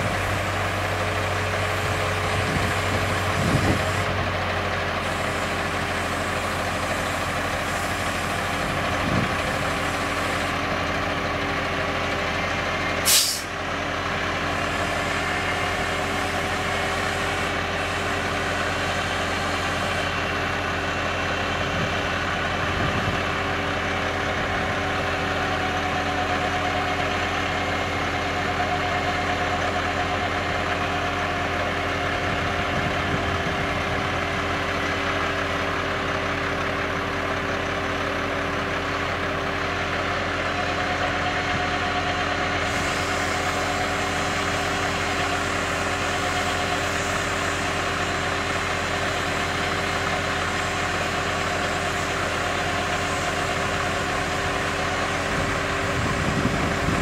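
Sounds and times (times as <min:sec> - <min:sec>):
diesel engines running: 0:00.0 - 0:57.0
air brake hiss: 0:13.0 - 0:13.6, 0:42.6 - 0:44.4.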